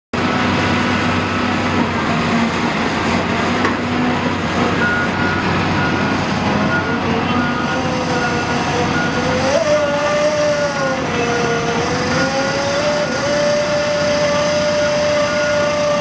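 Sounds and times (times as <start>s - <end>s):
heavy equipment engine running: 0.2s - 16.0s
reversing alarm beeping: 4.6s - 16.0s.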